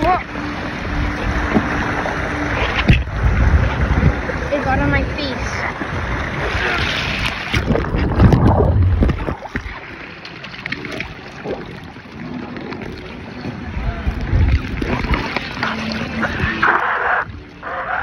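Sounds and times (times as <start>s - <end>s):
low rumble: 0.0s - 10.2s, 10.8s - 17.8s
water rushing down a slide: 1.3s - 13.0s.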